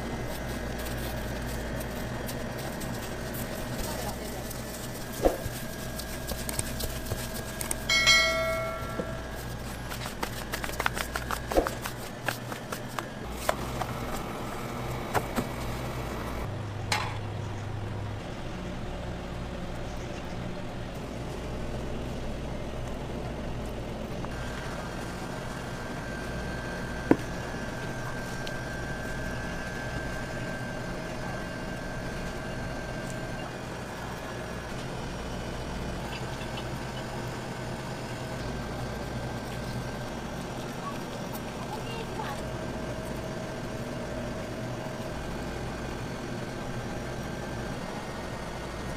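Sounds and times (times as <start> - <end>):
steady background hum: 0.0 - 48.9
ringing clink: 7.9 - 9.3.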